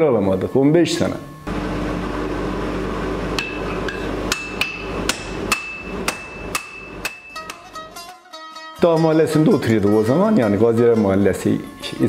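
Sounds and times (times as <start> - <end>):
hammers beating iron on anvil: 3.4 - 7.6
plucked-string music: 6.5 - 12.0.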